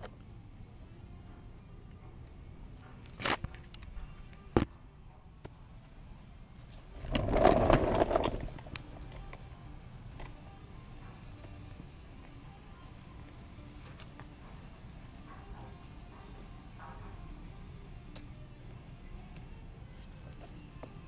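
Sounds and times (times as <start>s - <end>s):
toy truck scraping on concrete: 7.0s - 8.6s.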